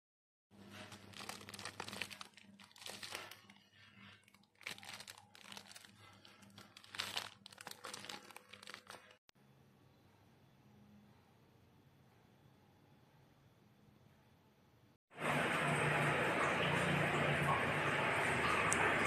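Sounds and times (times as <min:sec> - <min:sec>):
plastic bags crinkling: 0:00.6 - 0:09.2.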